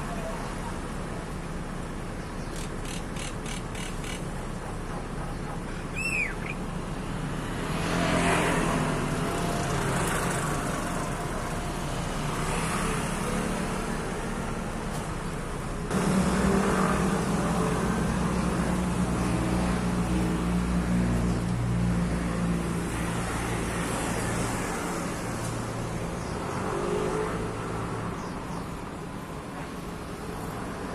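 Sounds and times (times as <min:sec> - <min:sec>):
vehicle engine humming: 0:00.0 - 0:30.9
bird chirp: 0:02.1 - 0:04.4, 0:05.0 - 0:06.7.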